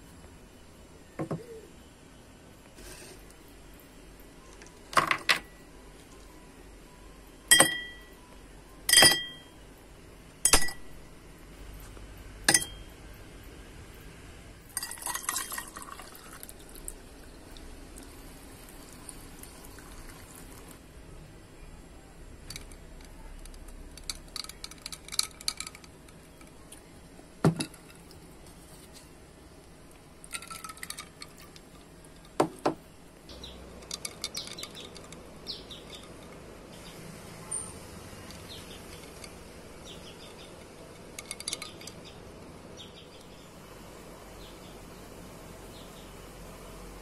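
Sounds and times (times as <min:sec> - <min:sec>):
ice cubes clinking in glass: 0:14.8 - 0:16.4, 0:30.3 - 0:31.5.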